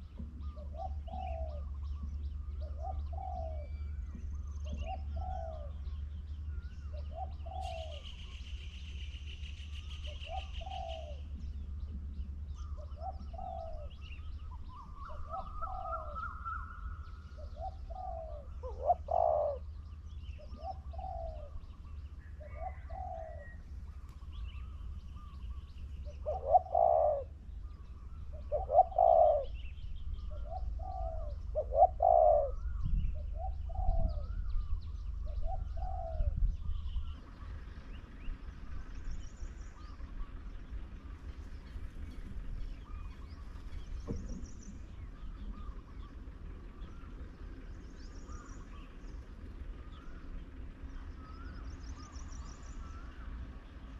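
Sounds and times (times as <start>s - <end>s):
dove cooing: 0.0s - 38.5s
small birds chirping: 0.0s - 53.9s
steady low hum: 0.0s - 53.9s.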